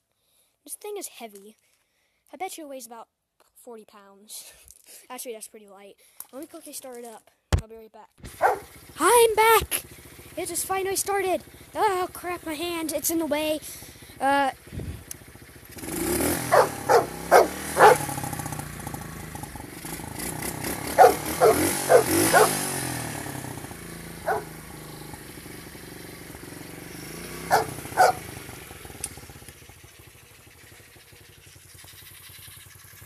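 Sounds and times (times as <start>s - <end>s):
motorbike engine idling: 8.3s - 33.0s
dog barking: 8.4s - 8.7s, 16.5s - 18.1s, 21.0s - 22.6s, 24.2s - 24.5s, 27.5s - 28.2s.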